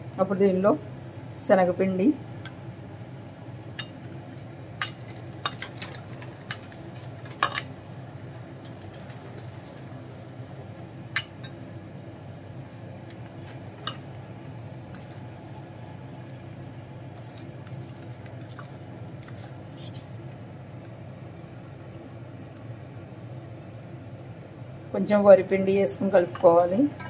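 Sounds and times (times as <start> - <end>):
hand mixing in a bowl: 4.8 - 11.5, 12.5 - 21.1.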